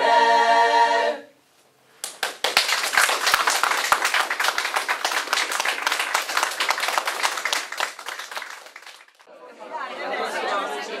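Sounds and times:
small audience applauding: 2.0 - 9.3.

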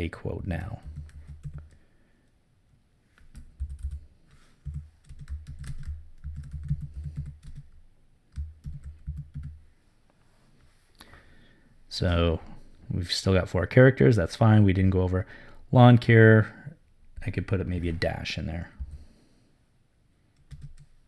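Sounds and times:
typing on computer keyboard: 0.8 - 1.8, 3.2 - 4.0, 4.6 - 9.6, 20.4 - 20.9.

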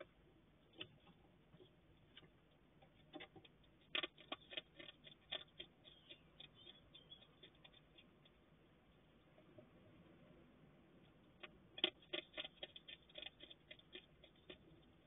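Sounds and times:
hedgehog crunching cat biscuits: 3.0 - 8.4, 11.4 - 15.0.

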